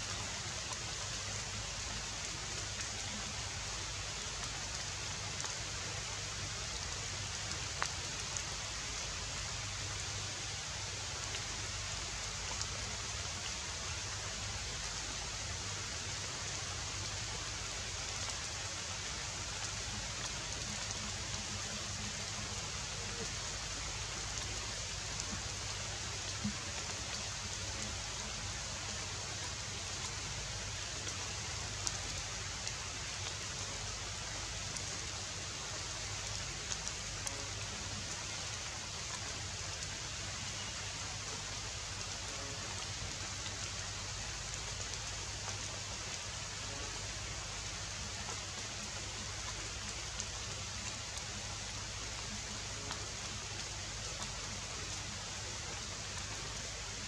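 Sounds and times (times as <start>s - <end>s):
outdoor background hiss: 0.0s - 57.0s
faint ticks: 6.8s - 8.4s, 36.2s - 38.2s.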